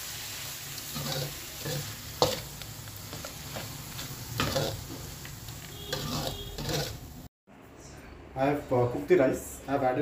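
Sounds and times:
food sizzling in oil: 0:00.0 - 0:07.3
spatula strokes against pan: 0:03.4 - 0:07.1.

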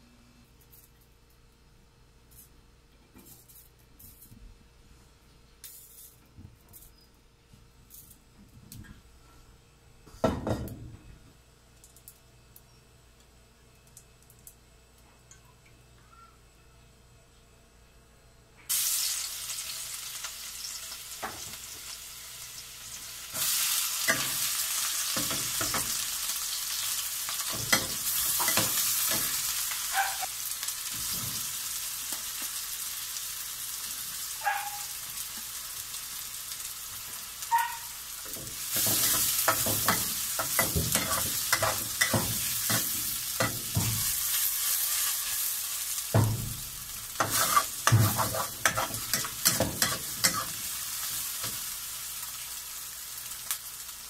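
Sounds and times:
onion and garlic sizzling in oil: 0:18.7 - 0:54.0
metal spoon scraping a wok: 0:38.7 - 0:45.5, 0:47.2 - 0:50.6.

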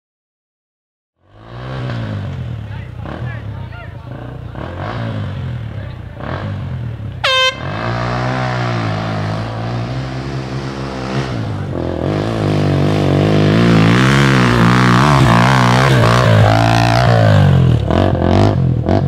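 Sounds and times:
dirt bike engine revving: 0:01.2 - 0:19.0
air horn blast: 0:07.2 - 0:08.2.

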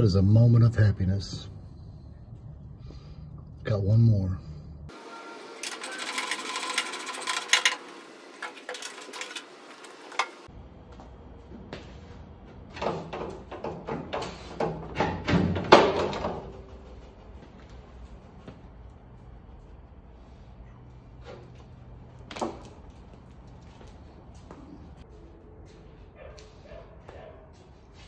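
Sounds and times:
tool clicks and rattles: 0:05.6 - 0:10.4.

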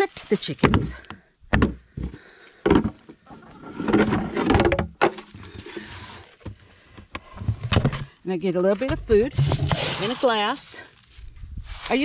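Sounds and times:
plastic buckets clattering: 0:00.5 - 0:10.7
plastic buckets knocking: 0:00.6 - 0:05.8, 0:08.8 - 0:10.4.

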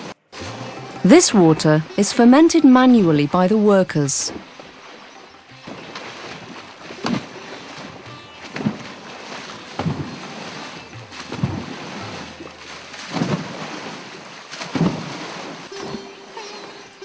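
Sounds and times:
heavy water splashes: 0:00.0 - 0:17.0
rushing water: 0:00.0 - 0:17.0
steady musical tone: 0:00.3 - 0:04.3.

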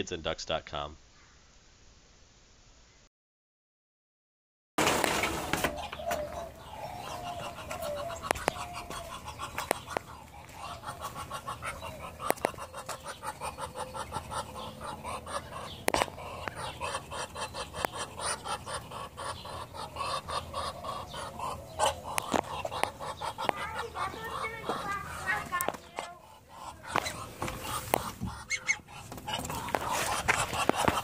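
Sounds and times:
poultry clucking: 0:04.8 - 0:31.0.

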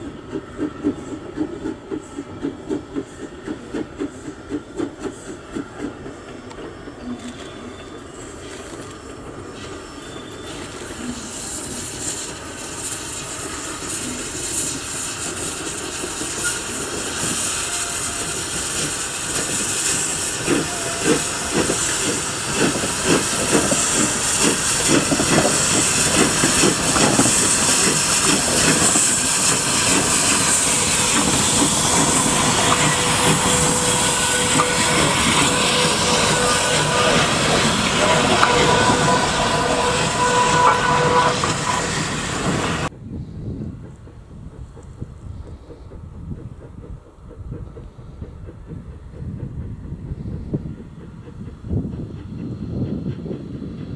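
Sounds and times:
train carriages rolling past: 0:00.0 - 0:43.0
steam locomotive chuffing: 0:00.0 - 0:53.9
steam hissing: 0:09.2 - 0:53.9.

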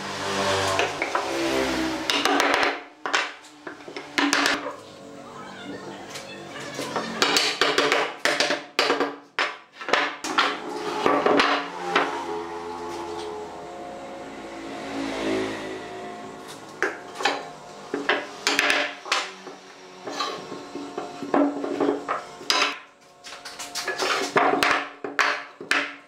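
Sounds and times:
wooden parts knocking on workbench: 0:02.1 - 0:04.7, 0:07.2 - 0:12.1, 0:16.8 - 0:19.3, 0:20.0 - 0:22.9, 0:23.9 - 0:26.0.

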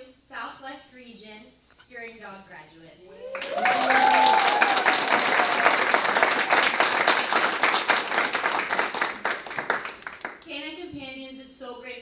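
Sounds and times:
audience applauding: 0:03.2 - 0:10.4.

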